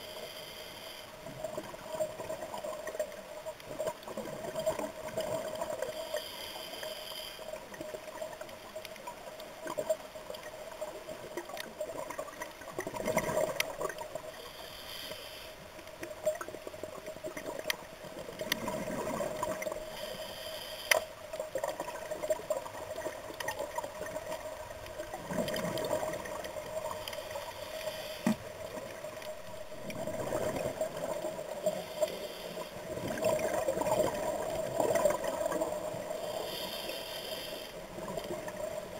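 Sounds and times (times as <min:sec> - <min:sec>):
regulator inhalation hiss: 0:00.0 - 0:01.1, 0:05.9 - 0:07.6, 0:14.3 - 0:15.6, 0:19.8 - 0:21.2, 0:27.0 - 0:28.4, 0:31.6 - 0:32.8, 0:36.1 - 0:37.8
exhaled bubbles gurgling: 0:01.2 - 0:06.0, 0:09.0 - 0:14.3, 0:16.2 - 0:19.9, 0:21.5 - 0:27.1, 0:28.2 - 0:32.0, 0:32.7 - 0:36.2.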